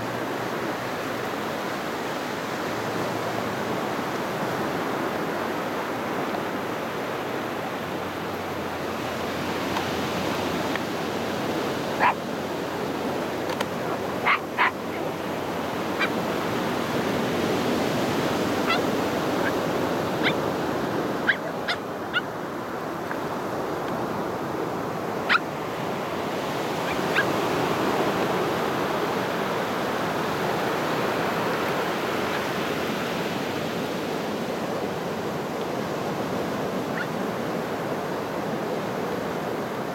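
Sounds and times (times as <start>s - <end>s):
waves breaking on beach: 0.0s - 39.9s
high-pitched animal calls: 12.0s - 12.2s, 13.8s - 15.2s, 16.0s - 16.2s, 18.6s - 19.6s, 20.2s - 20.5s, 21.2s - 22.4s.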